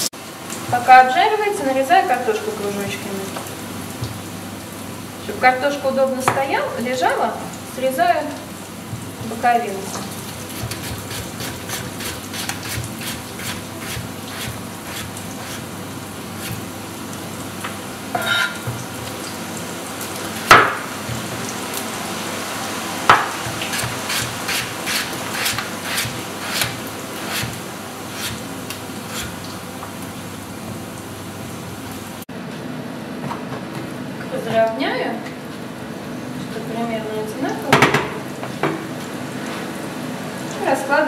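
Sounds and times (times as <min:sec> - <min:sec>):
fat and onion sizzling: 0:00.0 - 0:32.3
knife knocking on cutting board: 0:23.1 - 0:24.0.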